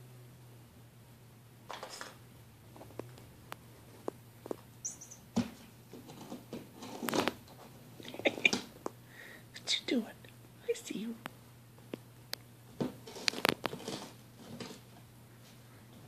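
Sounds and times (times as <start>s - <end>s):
kitten squeak: 4.8s - 5.3s.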